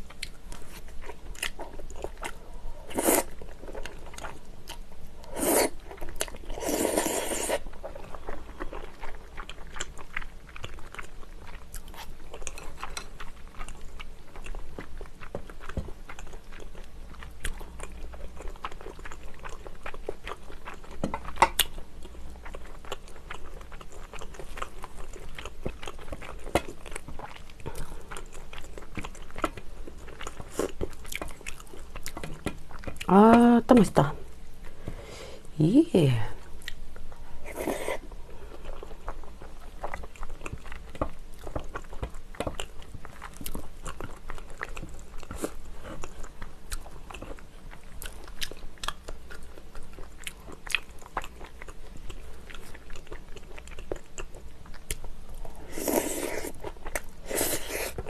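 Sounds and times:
noodle slurping: 0:05.3 - 0:05.8, 0:06.6 - 0:07.6, 0:55.7 - 0:56.6, 0:57.2 - 0:58.0
wet chewing with clicks: 0:07.5 - 0:34.1, 0:36.6 - 0:37.2, 0:38.5 - 0:58.0.

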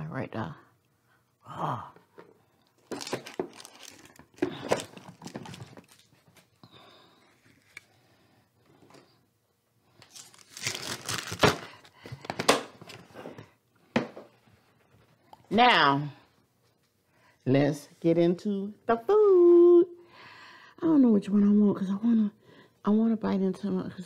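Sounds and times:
plastic lid rustling and scraping: 0:02.1 - 0:06.4.

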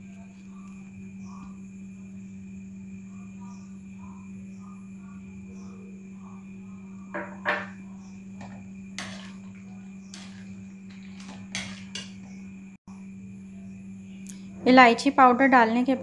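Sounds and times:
steady low hum: 0:00.0 - 0:16.0
spoon scraping and clinking in pan: 0:08.4 - 0:12.4.

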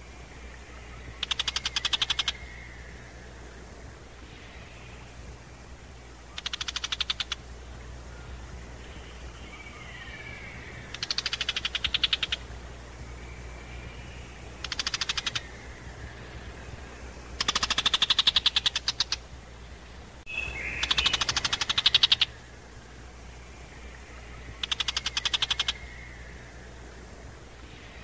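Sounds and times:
thin whistled bird notes: 0:00.0 - 0:03.6, 0:08.1 - 0:19.2, 0:20.3 - 0:22.5, 0:23.2 - 0:26.8.

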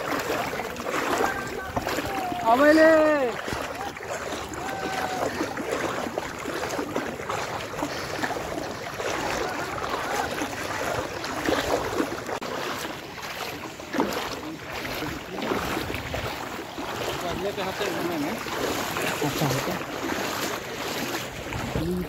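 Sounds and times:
wading through water: 0:00.0 - 0:22.0.

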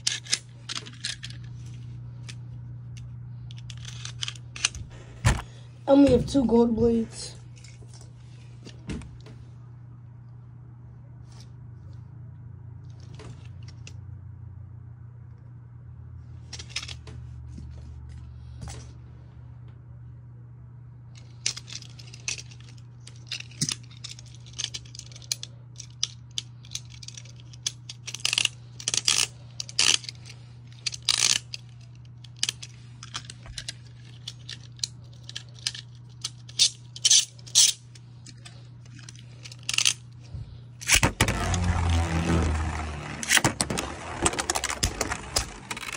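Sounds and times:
low hum: 0:00.0 - 0:45.9
plastic and metal parts clicking: 0:21.2 - 0:40.0, 0:42.6 - 0:45.9.

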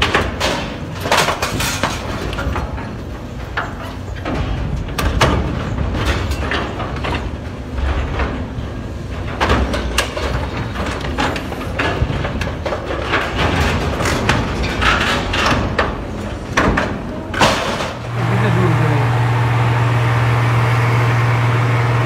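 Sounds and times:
excavator engine rumble: 0:18.0 - 0:22.0.

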